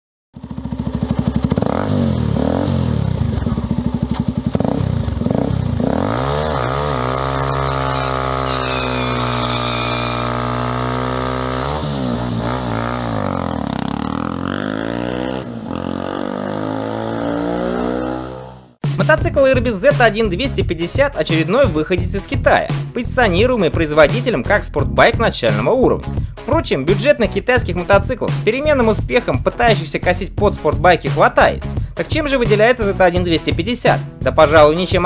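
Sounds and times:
motorcycle engine revving: 0:00.4 - 0:18.8.

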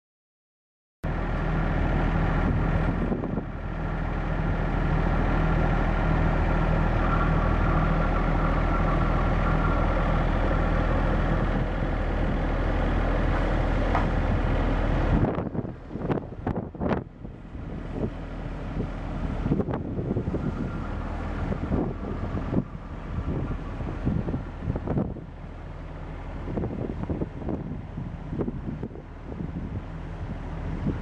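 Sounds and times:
diesel pump engine drone: 0:01.0 - 0:31.0
wind buffeting microphone: 0:01.3 - 0:31.0.

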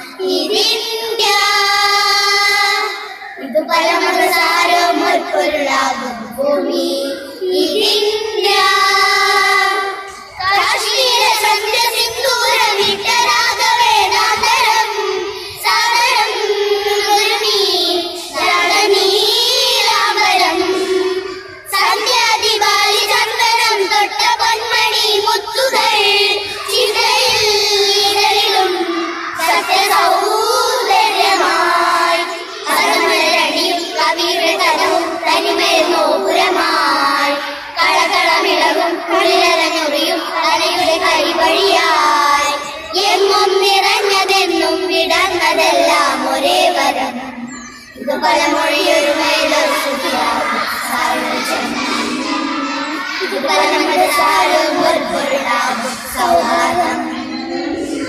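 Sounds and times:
children singing together: 0:00.0 - 0:58.0.

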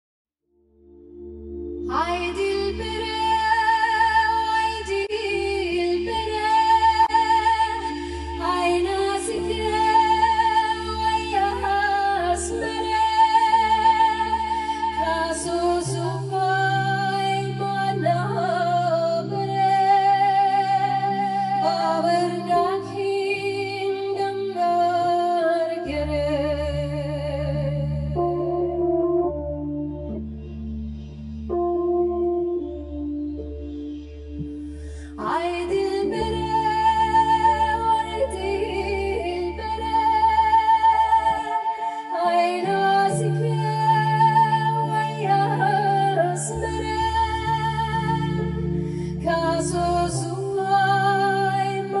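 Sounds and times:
sustained low accompaniment: 0:00.6 - 0:24.5, 0:25.9 - 0:41.6
woman singing with vibrato: 0:01.9 - 0:28.9, 0:35.1 - 0:52.0.

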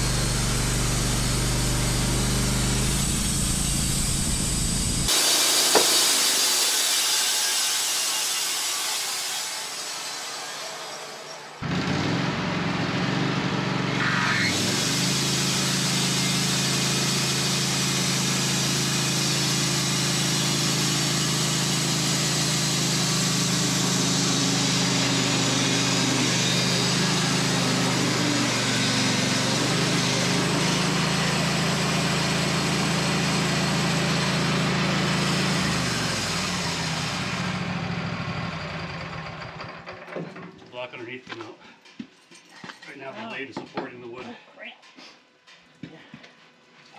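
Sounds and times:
band saw blade cutting wood: 0:00.0 - 0:37.4
sawmill engine hum: 0:00.0 - 0:40.8.

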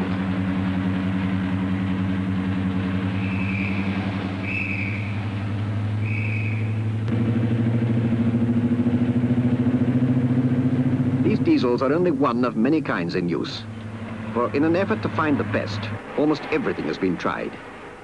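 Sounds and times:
diesel locomotive engine droning: 0:00.0 - 0:18.0.

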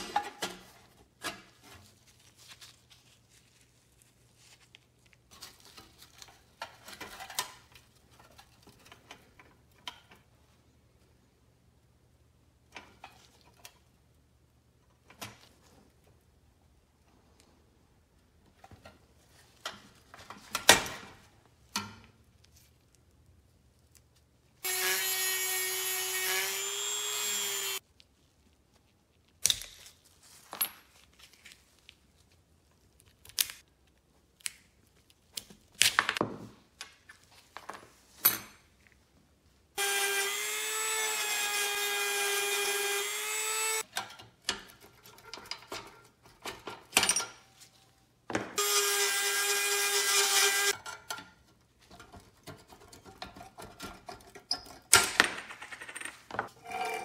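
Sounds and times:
rotary tool grinding metal: 0:24.6 - 0:27.8, 0:56.6 - 0:57.0
hand tools on sheet metal: 0:48.6 - 0:55.1, 0:56.5 - 0:57.0.

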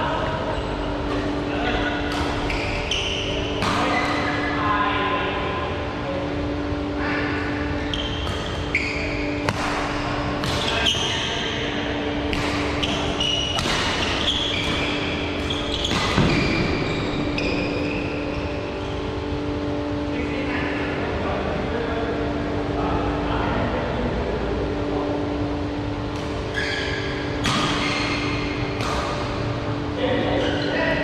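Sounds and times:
steady low hum: 0:00.0 - 0:31.0
rackets hitting shuttlecock: 0:02.0 - 0:04.4, 0:09.4 - 0:11.2, 0:12.2 - 0:16.9, 0:27.1 - 0:29.5
shoes squeaking on floor: 0:02.4 - 0:04.0, 0:07.7 - 0:09.4, 0:12.7 - 0:19.1, 0:26.5 - 0:28.4.

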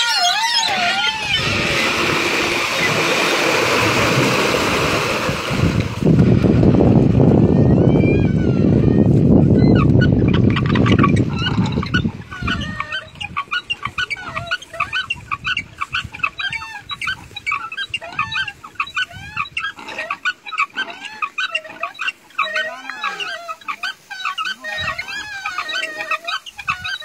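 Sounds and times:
high chirps and squeaks: 0:00.0 - 0:01.6, 0:09.5 - 0:27.0
water gushing into channel: 0:00.6 - 0:07.2.

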